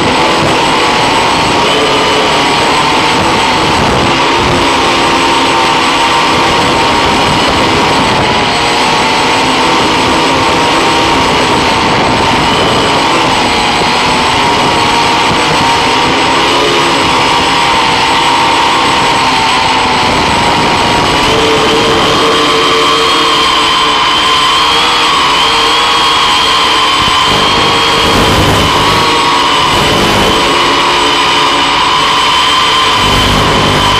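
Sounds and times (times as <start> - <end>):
drone motors and propellers whining: 0.0 - 33.9.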